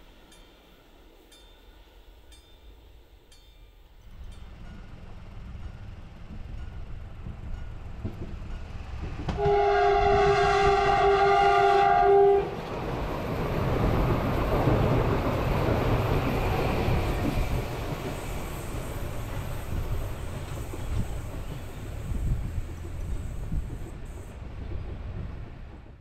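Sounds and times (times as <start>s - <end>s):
train rumbling past: 0.0s - 26.0s
train horn blast: 9.4s - 12.6s.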